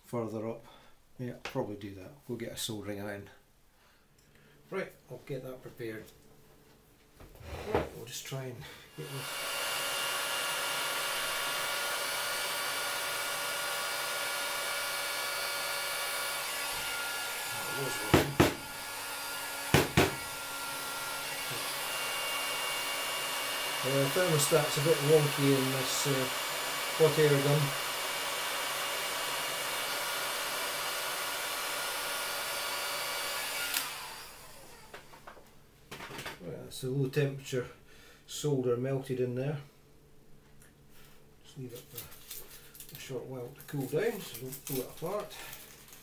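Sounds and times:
fan whine: 8.6s - 35.5s
hot air gun blowing: 8.9s - 34.9s.

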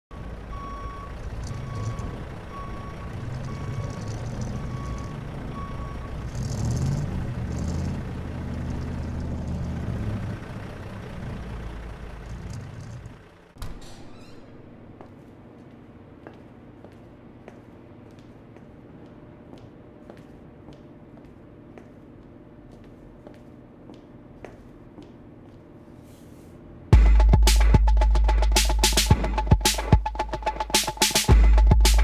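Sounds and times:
reversing beeper: 0.1s - 7.2s
diesel truck engine running: 0.1s - 13.6s.

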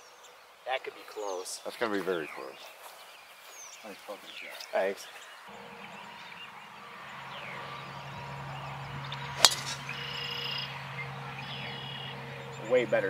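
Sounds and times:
birds chirping: 0.0s - 13.0s
golf club striking ball: 9.0s - 10.6s.

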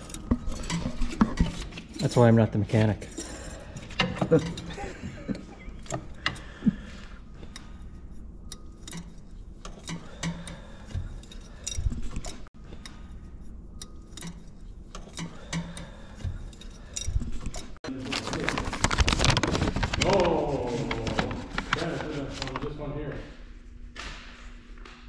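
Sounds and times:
hand tools clicking on metal: 8.5s - 13.0s, 13.8s - 17.8s.

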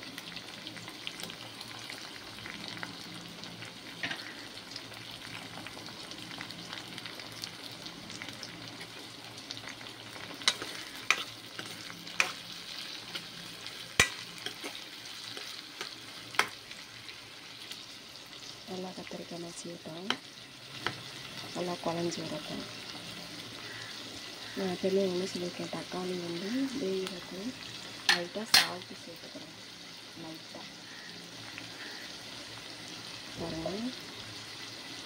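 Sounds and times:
vegetables sizzling in oil: 0.0s - 35.0s
metal spoon clinking on a pan: 14.0s - 14.7s, 28.1s - 28.8s.

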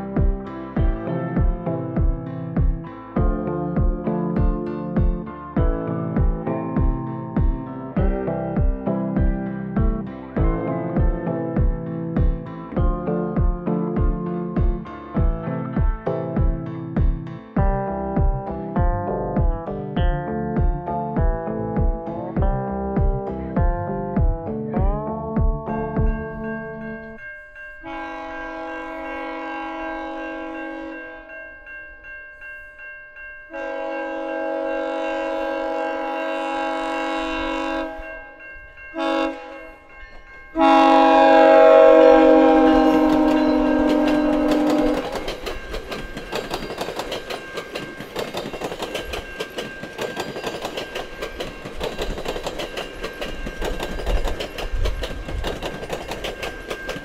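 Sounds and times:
music: 0.0s - 57.0s
train horn blasts: 27.8s - 31.4s, 33.5s - 39.9s, 40.5s - 45.4s
train wheels clattering over rail joints: 42.4s - 57.0s.

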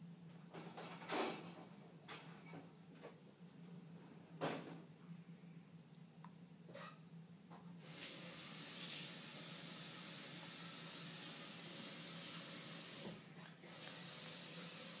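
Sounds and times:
low steady hum: 1.7s - 7.8s
steady hissing noise: 7.8s - 15.0s.

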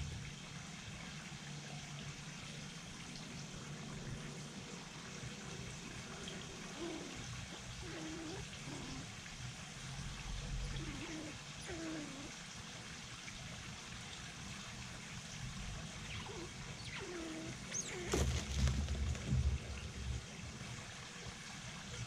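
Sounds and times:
light rain hiss: 0.0s - 22.0s
dove cooing: 5.7s - 9.3s, 10.4s - 12.4s, 16.0s - 19.4s.

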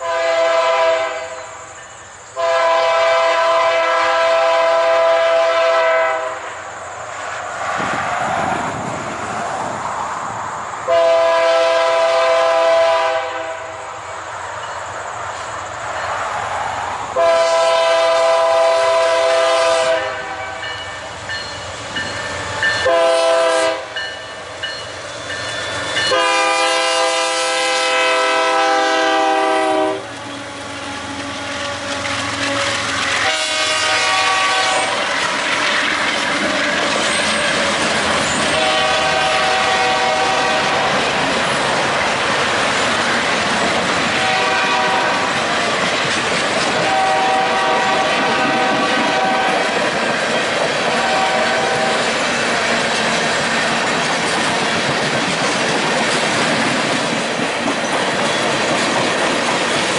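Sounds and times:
locomotive air horn blasts: 0.0s - 1.6s, 2.4s - 6.6s, 10.9s - 13.9s, 17.2s - 20.7s, 22.8s - 24.1s, 26.0s - 35.1s, 38.5s - 41.0s, 44.1s - 45.4s, 46.8s - 49.6s, 50.9s - 52.1s
train wheels on rails: 0.0s - 59.9s
locomotive engine rumble: 29.3s - 59.9s.

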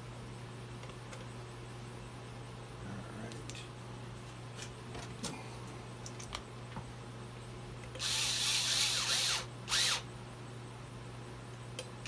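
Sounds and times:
power drill running: 8.0s - 10.1s.

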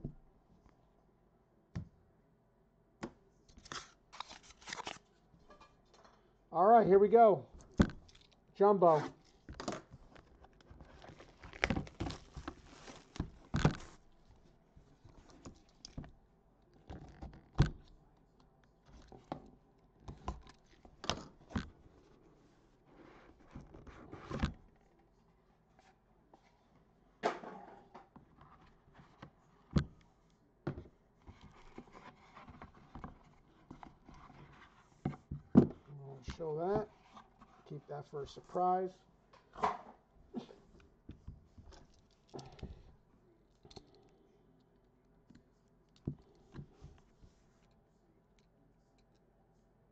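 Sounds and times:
wrapping rustling and tearing: 3.6s - 5.2s, 10.0s - 14.2s.

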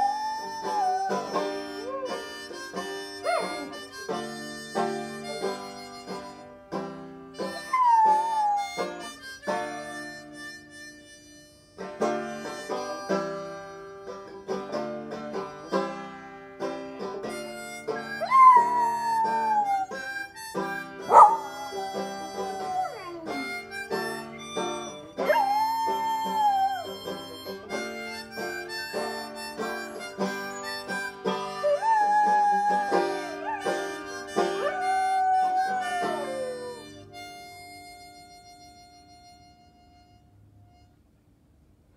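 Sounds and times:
dog howling: 0.0s - 2.3s, 3.2s - 3.8s, 7.6s - 9.0s, 18.2s - 20.1s, 21.1s - 23.8s, 25.1s - 27.1s, 31.5s - 36.9s
plucked banjo notes: 0.0s - 10.9s, 11.8s - 39.6s
harmonica melody: 0.0s - 41.8s.

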